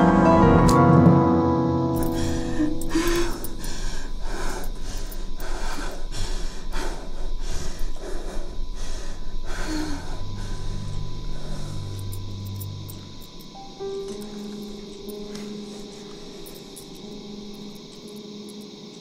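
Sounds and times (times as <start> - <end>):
low held music tones: 0.0 - 19.0
woman breathing hard: 2.0 - 13.2.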